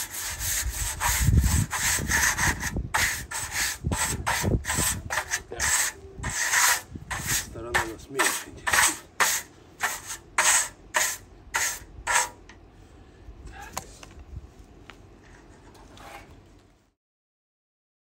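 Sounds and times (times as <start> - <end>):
blade scraping wood: 0.0 - 12.4, 15.2 - 16.4.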